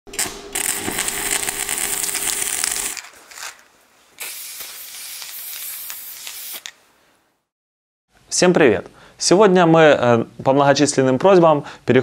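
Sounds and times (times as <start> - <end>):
welding arc crackling: 0.1 - 3.6, 4.2 - 6.8
steady hum: 0.2 - 3.0
spray-like hiss: 4.2 - 6.8.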